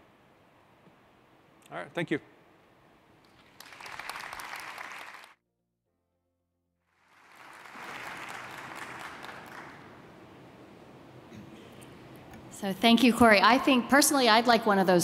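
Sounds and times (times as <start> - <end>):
audience applauding: 3.3 - 5.4, 6.9 - 10.1.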